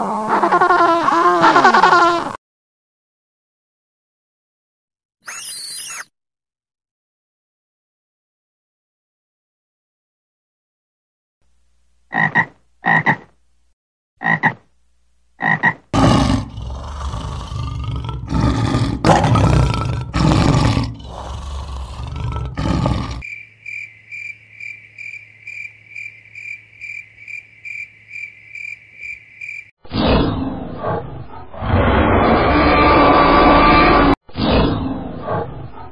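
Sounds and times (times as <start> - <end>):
insect buzzing: 5.2 - 6.1
frog croaking: 12.1 - 13.3, 14.2 - 14.6, 15.4 - 17.2, 20.8 - 29.7
lion roaring: 16.0 - 23.2.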